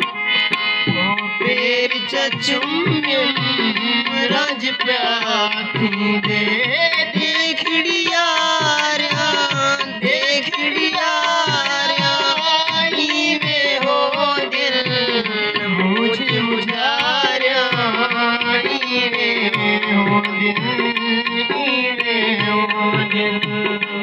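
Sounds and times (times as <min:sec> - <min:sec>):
hand drums: 0:00.0 - 0:24.0.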